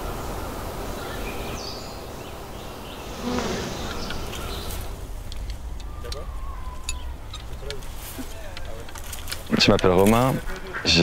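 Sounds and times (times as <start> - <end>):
bee buzzing: 0.0 - 5.1
faint high chirps: 0.0 - 7.9.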